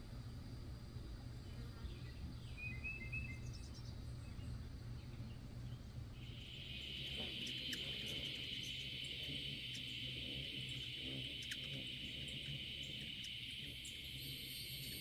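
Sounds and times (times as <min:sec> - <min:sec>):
low background hum: 0:00.0 - 0:15.0
high insect buzz: 0:04.6 - 0:15.0.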